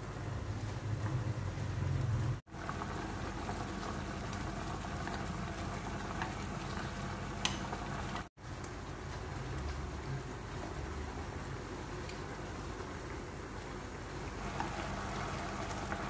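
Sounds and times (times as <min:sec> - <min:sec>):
pork sizzling in sauce: 0:14.4 - 0:16.0.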